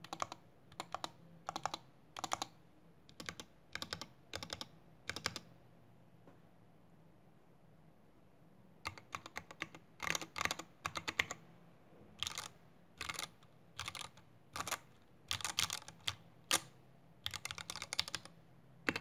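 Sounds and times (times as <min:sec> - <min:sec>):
mechanical keyboard typing: 0:00.0 - 0:05.5, 0:08.8 - 0:11.4, 0:12.2 - 0:19.0.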